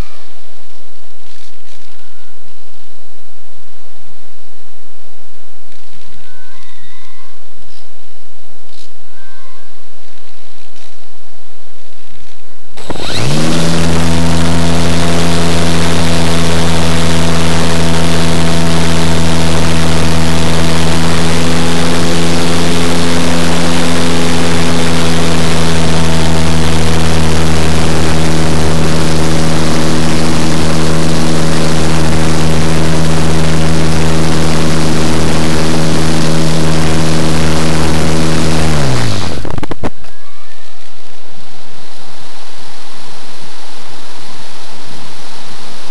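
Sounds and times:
electric motor and propeller humming: 0:12.8 - 0:45.9.

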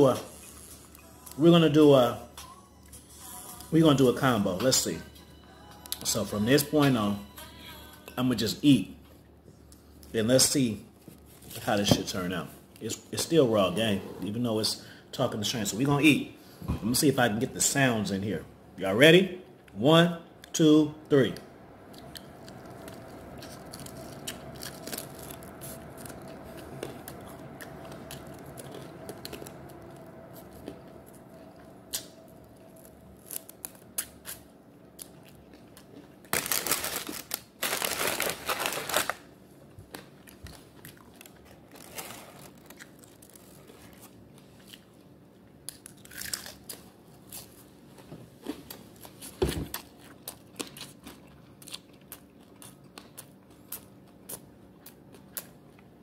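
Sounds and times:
person eating and chewing: 0:21.9 - 0:39.0, 0:40.1 - 0:47.7, 0:48.4 - 0:56.0.

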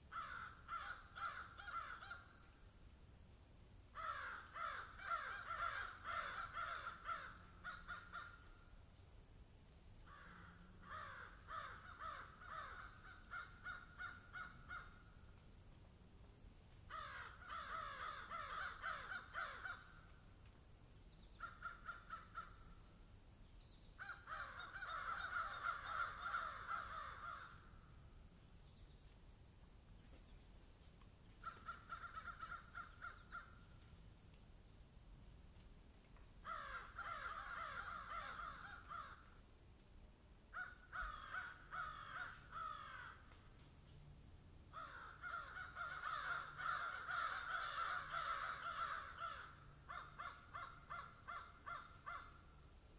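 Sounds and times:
crows cawing: 0:00.1 - 0:02.4, 0:04.0 - 0:08.6, 0:10.1 - 0:15.1, 0:16.9 - 0:20.2, 0:21.4 - 0:22.8, 0:24.0 - 0:27.7, 0:31.4 - 0:33.7, 0:36.4 - 0:39.4, 0:40.5 - 0:43.3, 0:44.7 - 0:52.4.

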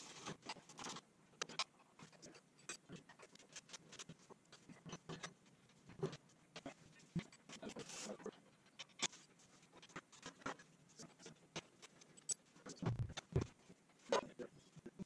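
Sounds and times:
tools clicking and scraping: 0:08.7 - 0:13.4
dull thumps: 0:12.8 - 0:13.5.

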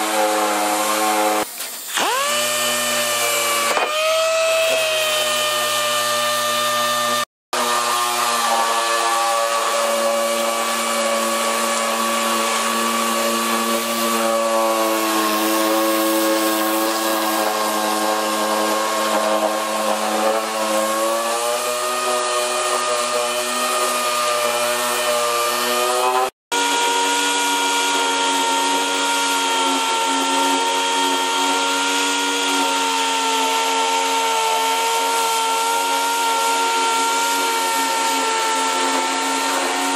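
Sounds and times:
air sander whining: 0:00.0 - 0:39.9.

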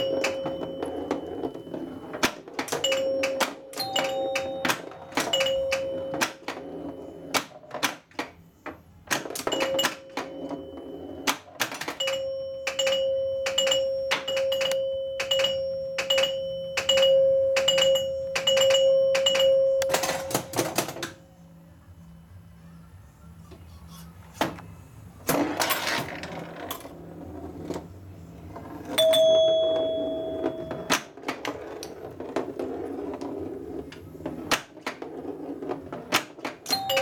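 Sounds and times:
pinball bell chimes: 0:00.0 - 0:07.4, 0:09.2 - 0:21.2, 0:28.9 - 0:31.2, 0:36.7 - 0:37.0
pinball solenoid and flipper clicks: 0:02.2 - 0:06.6, 0:09.1 - 0:10.5, 0:11.2 - 0:21.2.

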